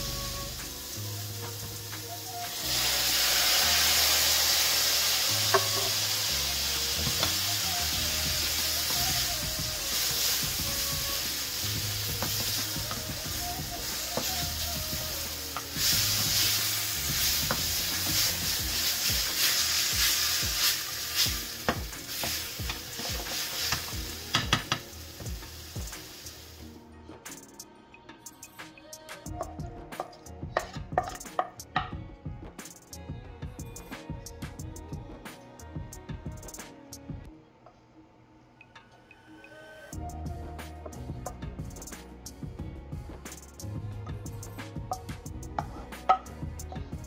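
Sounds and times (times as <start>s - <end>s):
mushrooms sizzling in a frying pan: 0.0s - 26.6s
spatula tapping against pan: 21.7s - 24.8s.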